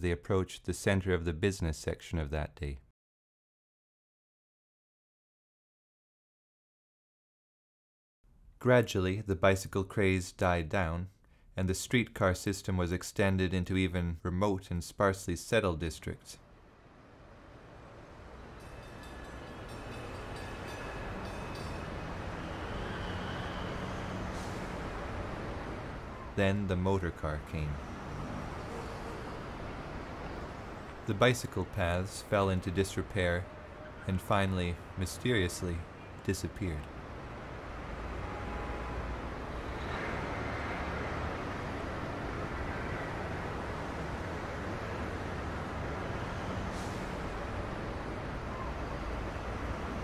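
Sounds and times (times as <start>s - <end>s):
even traffic hiss: 15.4s - 50.0s
streetcar rumbling on rails: 17.2s - 26.8s, 27.4s - 31.1s, 36.9s - 50.0s
wheels squealing faintly: 18.9s - 26.6s, 38.1s - 44.0s, 45.8s - 50.0s.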